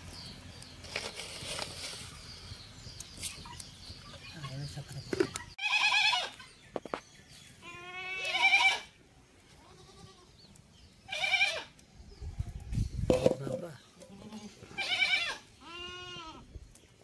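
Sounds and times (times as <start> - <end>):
farm animal bleating: 5.6 - 6.4, 7.6 - 10.4, 11.0 - 11.7, 14.0 - 16.5.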